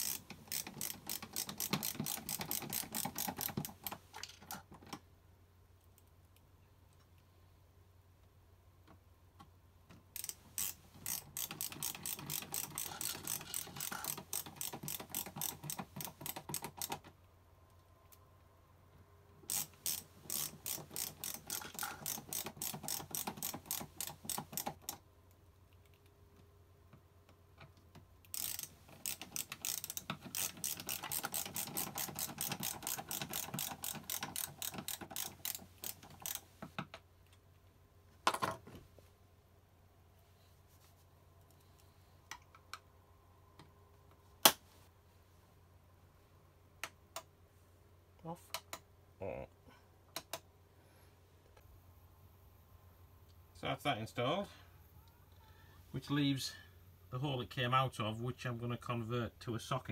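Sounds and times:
ratcheting screwdriver clicking: 0:00.0 - 0:04.2, 0:10.2 - 0:17.0, 0:19.5 - 0:25.0, 0:28.2 - 0:36.8.

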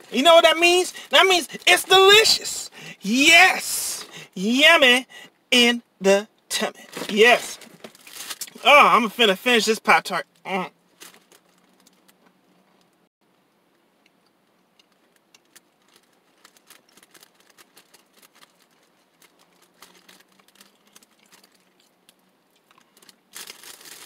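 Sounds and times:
person chewing with mouth clicks: 0:19.7 - 0:23.0.

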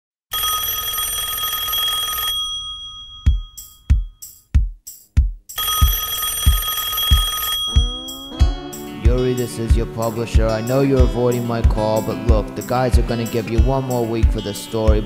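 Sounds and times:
telephone ringing: 0:00.3 - 0:04.0, 0:05.6 - 0:08.4
deep drumbeat thumps: 0:03.4 - 0:05.5, 0:07.8 - 0:15.0.

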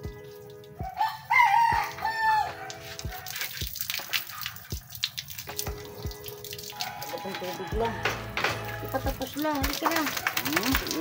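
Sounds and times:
background music with beat: 0:00.0 - 0:11.0
hose water splashing: 0:00.0 - 0:11.0
rooster crowing: 0:00.8 - 0:03.3, 0:06.7 - 0:09.0.

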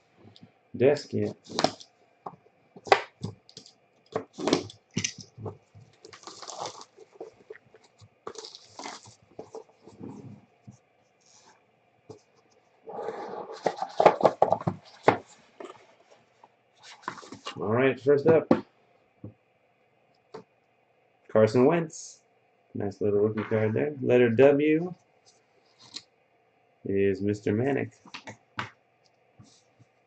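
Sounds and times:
plastic wrap crinkling: 0:02.8 - 0:10.4.

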